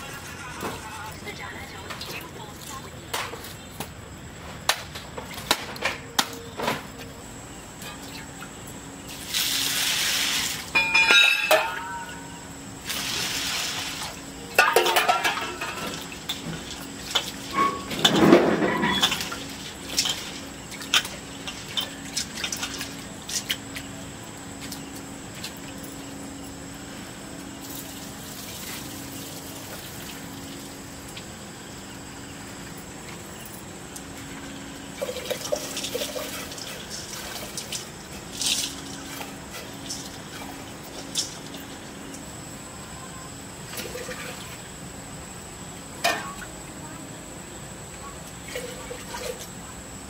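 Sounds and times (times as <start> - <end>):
steel utensils clinking: 10.7 - 12.3, 17.1 - 22.6.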